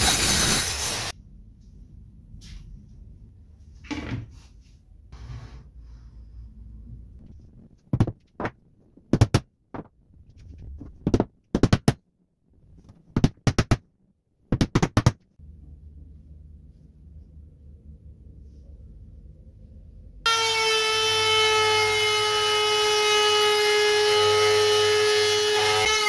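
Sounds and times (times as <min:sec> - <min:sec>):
low steady hum: 0:01.2 - 0:08.0, 0:15.4 - 0:20.3.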